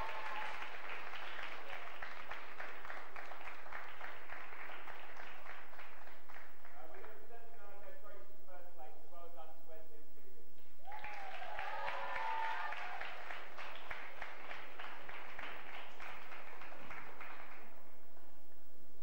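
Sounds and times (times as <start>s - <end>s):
audience applauding: 0.0s - 7.2s, 10.8s - 18.4s.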